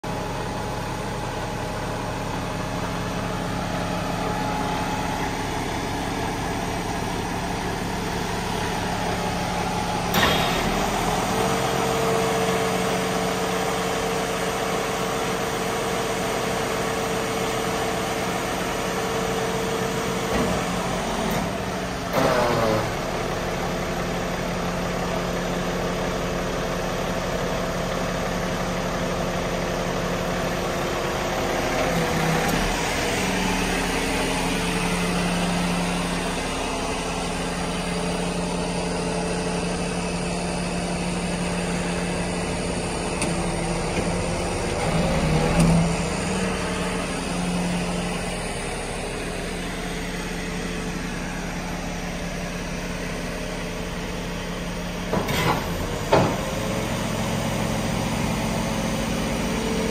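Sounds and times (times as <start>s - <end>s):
diesel truck engine idling: 0.0s - 59.9s
hydraulic whine: 9.1s - 13.1s, 20.3s - 23.6s.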